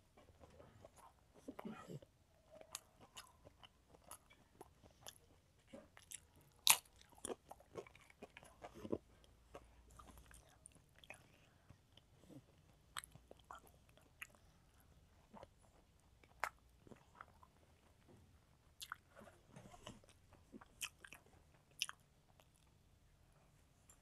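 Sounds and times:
chewing food: 0:00.0 - 0:24.0.

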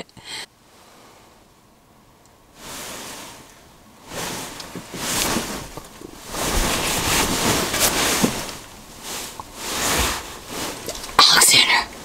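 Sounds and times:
breathy whispering: 0:11.2 - 0:12.0.

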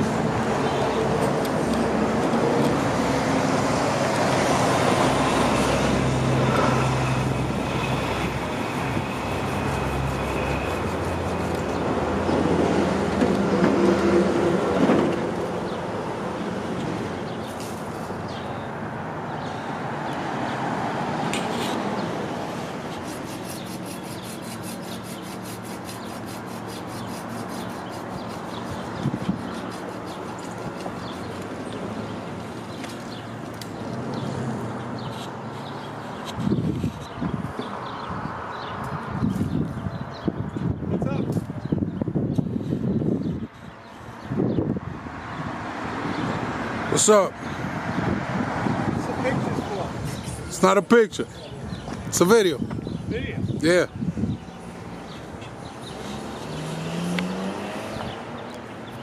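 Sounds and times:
motor vehicle running nearby: 0:00.0 - 0:40.3, 0:54.4 - 0:59.0
traffic hum: 0:00.0 - 0:59.0.

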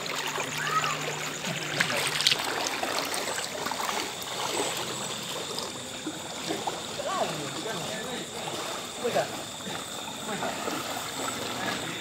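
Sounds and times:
floodwater sloshing and splashing: 0:00.0 - 0:12.0.

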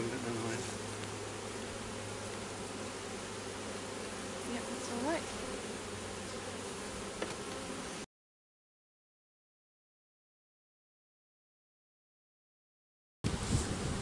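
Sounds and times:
honeybees buzzing: 0:00.0 - 0:08.1, 0:13.3 - 0:14.0.

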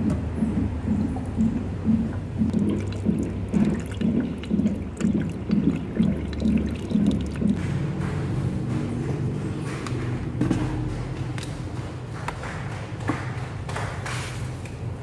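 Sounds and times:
low even pulsing: 0:00.0 - 0:07.6
water running into a pot: 0:02.1 - 0:07.6.

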